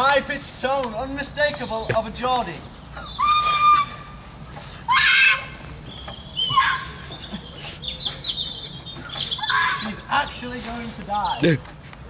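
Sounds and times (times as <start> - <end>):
person squealing and shrieking: 3.2 - 4.2, 4.9 - 5.6, 6.5 - 7.1.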